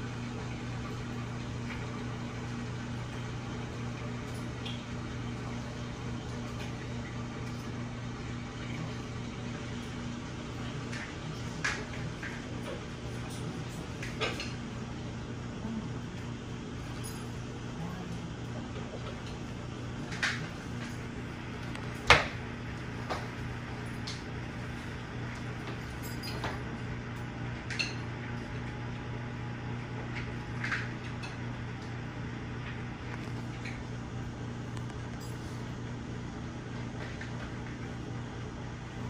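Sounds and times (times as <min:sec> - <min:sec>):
ceiling fan running: 0:00.0 - 0:39.0
light clicks and clinks: 0:25.6 - 0:26.7.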